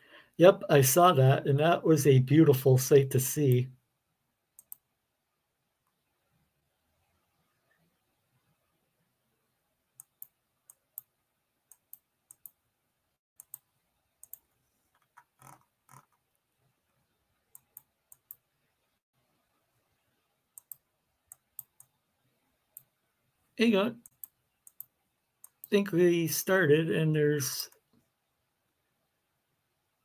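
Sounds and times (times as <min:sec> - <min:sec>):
computer mouse clicks: 0:04.6 - 0:04.9, 0:10.0 - 0:11.1, 0:11.7 - 0:12.6, 0:13.4 - 0:16.2, 0:17.5 - 0:18.4, 0:20.6 - 0:22.0, 0:24.0 - 0:25.8.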